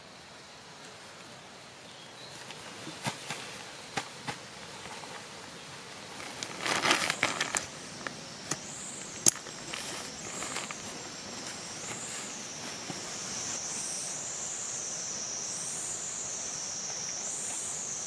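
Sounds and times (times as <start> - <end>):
fabric rustling and crinkling: 6.1 - 8.2, 9.4 - 13.6.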